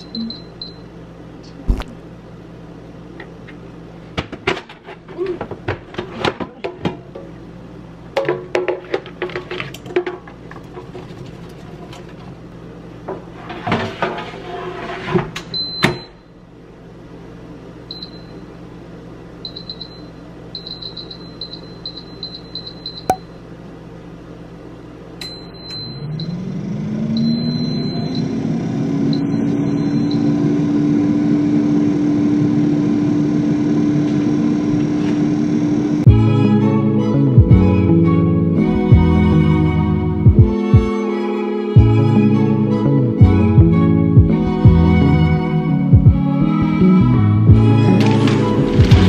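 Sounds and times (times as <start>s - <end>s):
air fryer control panel beeping: 0.0s - 0.9s, 17.9s - 18.4s, 19.4s - 23.2s, 25.2s - 26.5s, 27.1s - 28.4s, 29.1s - 30.6s
air fryer fan whirring: 0.0s - 36.2s.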